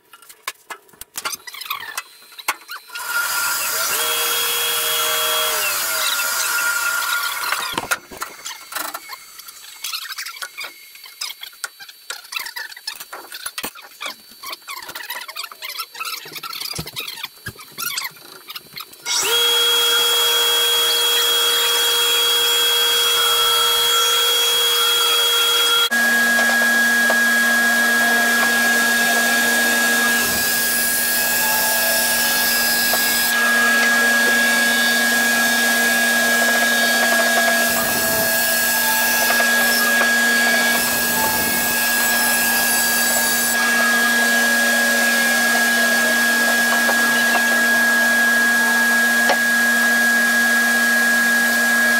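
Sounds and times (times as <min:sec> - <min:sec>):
saw cutting wood: 0:01.5 - 0:10.8, 0:19.0 - 0:51.9
bandsaw hum and whine: 0:19.1 - 0:51.9.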